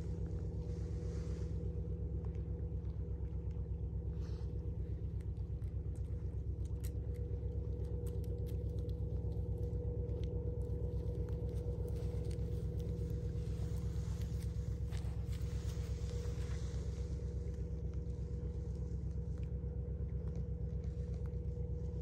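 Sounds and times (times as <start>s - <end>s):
boat diesel engine drone: 0.0s - 22.0s
faint clicks: 5.2s - 15.8s.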